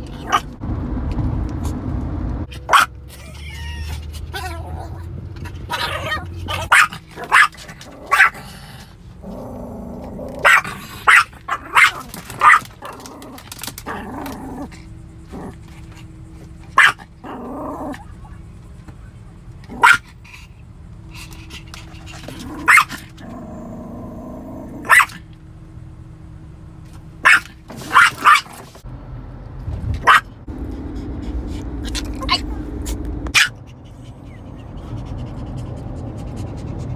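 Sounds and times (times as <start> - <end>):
small dog barking: 2.6 - 3.0, 5.7 - 8.4, 10.3 - 13.0, 16.7 - 17.4, 19.7 - 20.2, 22.6 - 23.1, 24.8 - 25.2, 27.2 - 28.6, 30.0 - 30.3, 33.3 - 33.6
dog growling: 3.6 - 16.0, 17.2 - 18.1, 22.1 - 24.9.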